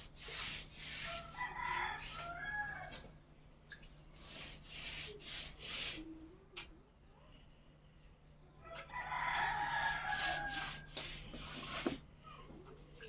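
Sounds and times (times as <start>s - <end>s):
rag rubbing wet mud on wall: 0.0s - 3.0s, 4.1s - 6.2s, 9.1s - 12.1s
rooster crowing: 1.1s - 3.1s, 8.6s - 10.9s.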